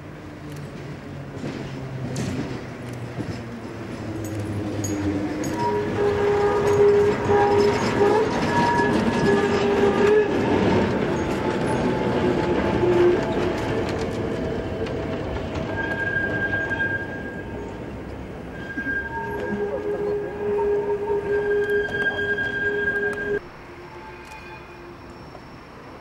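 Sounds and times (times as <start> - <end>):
tram rumbling past: 0.0 - 26.0
wheels squealing on track: 4.2 - 14.9, 15.5 - 17.8, 18.5 - 25.8.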